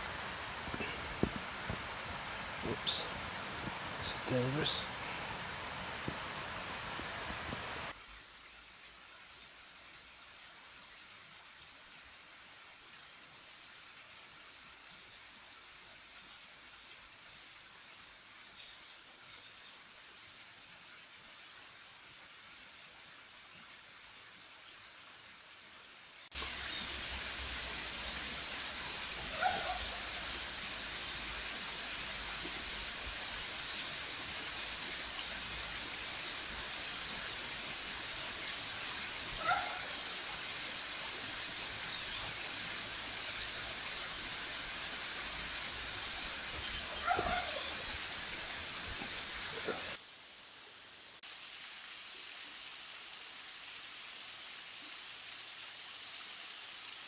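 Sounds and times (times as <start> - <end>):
water rushing over stones: 0.0 - 8.0, 26.3 - 50.0.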